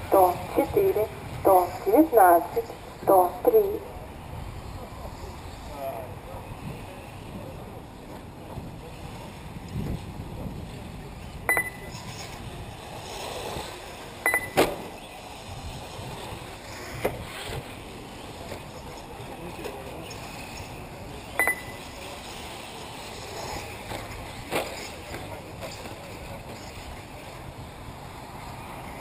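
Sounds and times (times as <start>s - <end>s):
wind: 0.0s - 29.0s
short high beeps: 11.5s - 12.0s, 14.2s - 14.6s, 21.4s - 21.8s.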